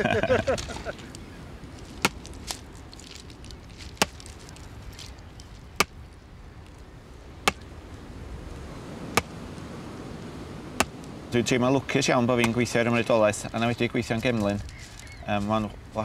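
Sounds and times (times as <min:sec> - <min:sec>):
steady outdoor hiss: 0:00.0 - 0:16.0
tool striking wood: 0:07.4 - 0:07.6.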